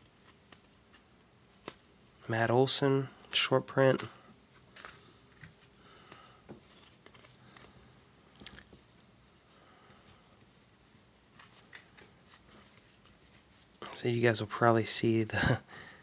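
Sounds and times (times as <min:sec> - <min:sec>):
cards rustling and clicking: 0:00.0 - 0:02.2, 0:03.3 - 0:09.2, 0:09.9 - 0:13.8.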